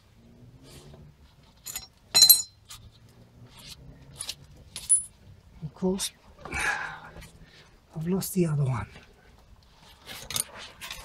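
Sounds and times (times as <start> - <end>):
small metal parts clinking: 1.4 - 2.8, 3.6 - 5.2, 10.1 - 11.0.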